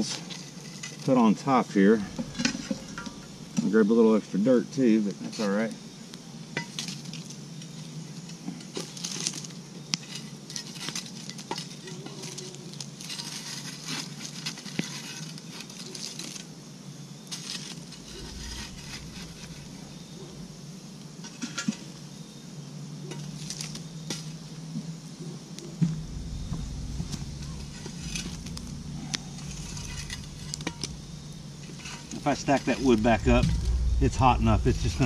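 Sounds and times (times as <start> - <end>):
tongs scraping and clinking coals: 0.0 - 3.8, 6.6 - 16.6, 17.2 - 20.3, 23.0 - 24.4, 27.4 - 33.0
fire crackling: 0.0 - 5.0, 8.9 - 22.3, 25.5 - 35.0.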